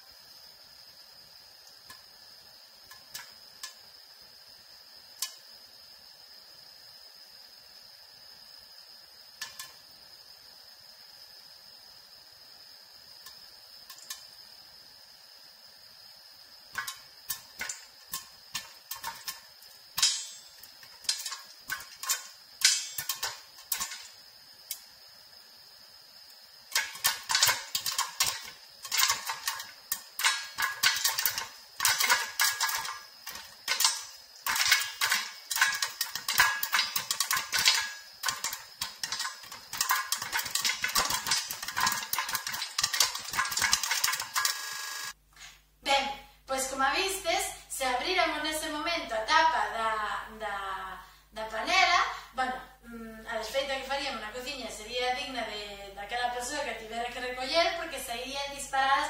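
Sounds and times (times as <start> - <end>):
popcorn popping in a pot: 0.0 - 6.7, 7.5 - 15.1, 15.9 - 45.2
faint high hiss: 0.0 - 59.0.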